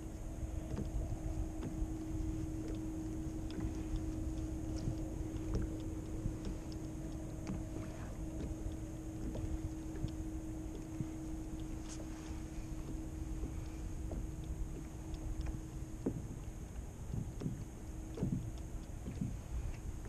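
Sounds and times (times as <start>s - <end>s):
steady low hum: 0.0s - 20.0s
wind and small waves rumbling: 0.0s - 20.0s
small clicks and taps: 0.5s - 20.0s.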